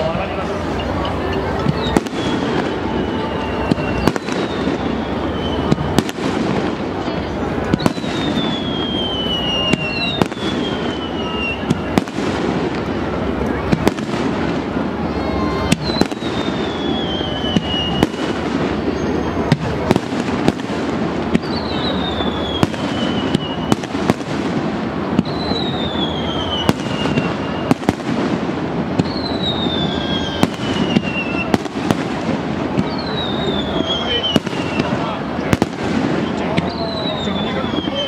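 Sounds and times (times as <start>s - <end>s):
fireworks cracking and banging: 0.0s - 38.0s
falling whistle tone: 1.7s - 6.0s, 7.8s - 12.0s, 15.0s - 19.6s, 21.4s - 23.8s, 25.2s - 27.8s, 29.0s - 31.6s, 32.8s - 35.2s, 36.2s - 38.0s.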